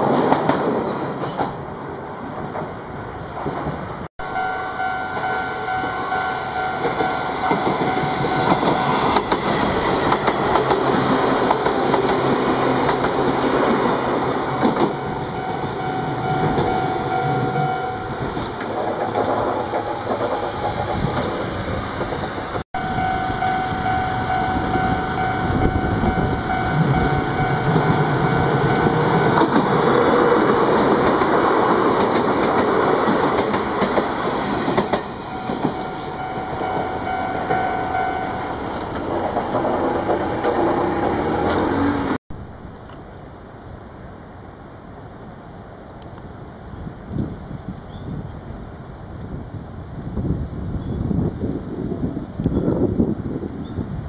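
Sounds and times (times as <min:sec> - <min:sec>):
train wheels clacking on rail joints: 0:06.8 - 0:42.2.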